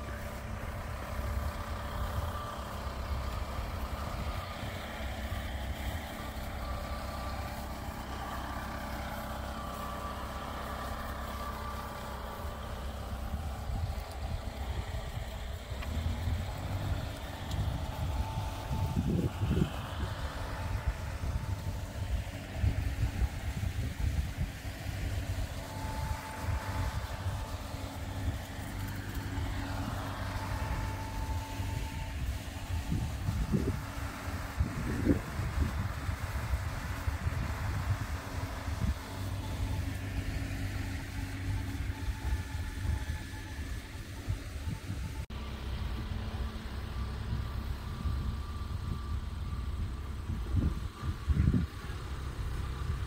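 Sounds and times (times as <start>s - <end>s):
tractor engine idling: 0.0s - 53.0s
wind buffeting microphone: 12.8s - 45.3s, 45.9s - 53.0s.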